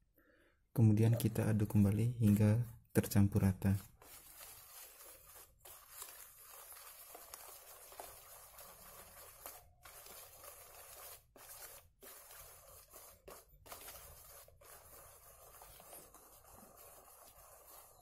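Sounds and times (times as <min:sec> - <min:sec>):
utensil scraping a metal bowl: 0:03.8 - 0:18.0.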